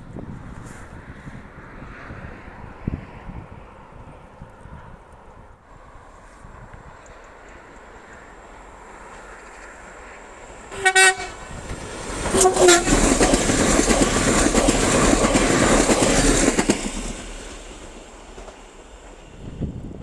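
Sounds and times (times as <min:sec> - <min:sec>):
train wheels on rails: 0:04.4 - 0:20.0
train horn toots: 0:10.7 - 0:11.6, 0:12.3 - 0:13.1.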